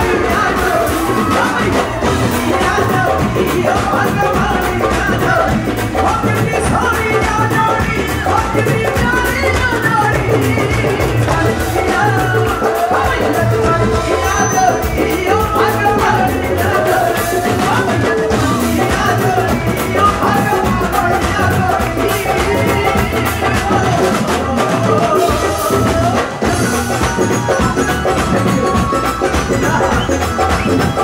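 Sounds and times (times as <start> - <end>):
bhangra music: 0.0 - 31.0
person singing: 0.0 - 31.0
steady drum beat: 0.0 - 31.0.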